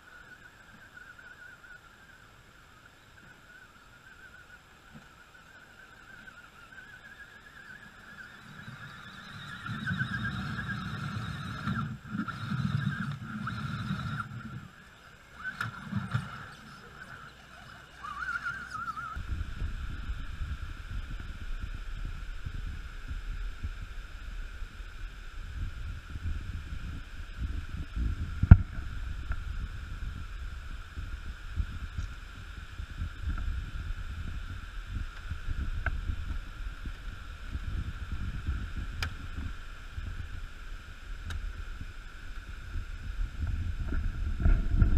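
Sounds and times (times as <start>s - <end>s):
faint high hum: 0.0s - 44.9s
wind buffeting microphone: 6.0s - 44.9s
electric motor whining: 6.1s - 40.6s
low rumble: 8.4s - 44.9s.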